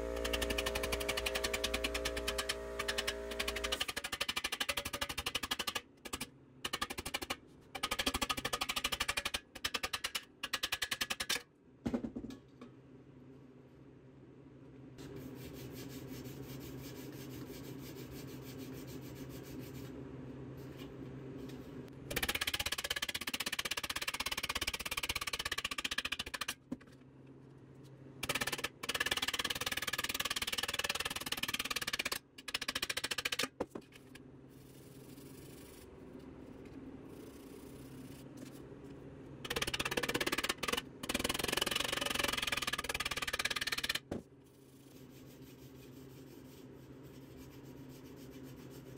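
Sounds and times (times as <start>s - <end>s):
steady low hum: 0.0s - 3.8s, 33.9s - 39.8s.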